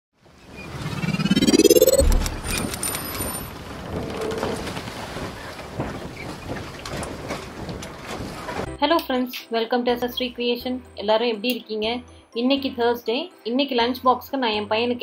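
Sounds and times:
rising whoosh: 0.6 - 3.0
rushing crackling noise: 0.6 - 8.4.

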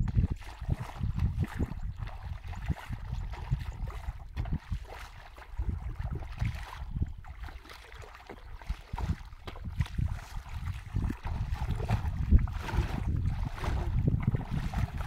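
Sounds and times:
bare feet squelching in mud: 0.0 - 15.0.

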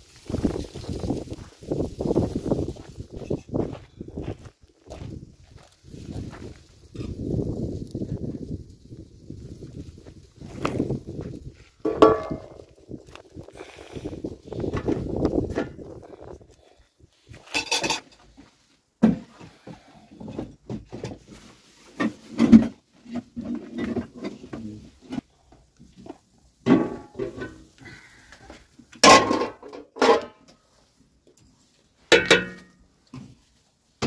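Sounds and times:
metal pots and lids clanking: 11.8 - 12.6, 17.4 - 18.2, 32.1 - 32.7.

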